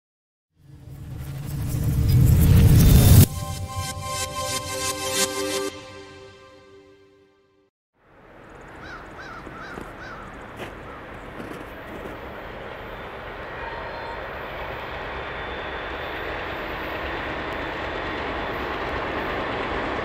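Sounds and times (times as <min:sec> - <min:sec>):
freight train rumble: 0:08.3 - 0:20.0
bird calls: 0:08.5 - 0:13.2.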